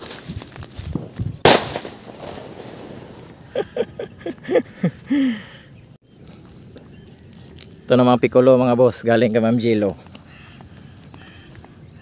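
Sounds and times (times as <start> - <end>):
firecracker bang: 1.4 - 3.4.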